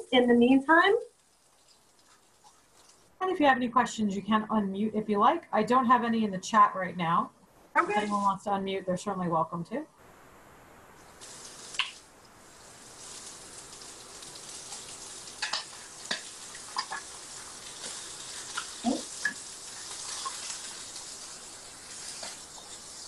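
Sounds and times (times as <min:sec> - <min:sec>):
fish sizzling in oil: 0:01.0 - 0:03.2, 0:11.0 - 0:23.0
metal tongs tapping pan: 0:15.4 - 0:17.1.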